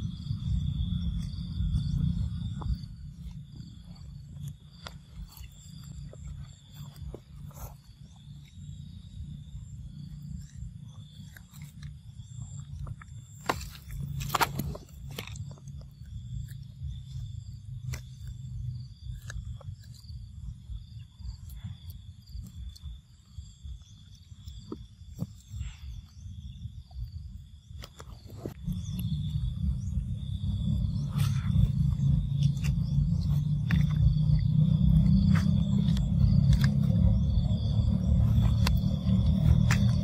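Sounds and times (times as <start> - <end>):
low rumble on microphone: 0.0 - 40.0
rustling dry leaves and twigs: 13.3 - 16.2.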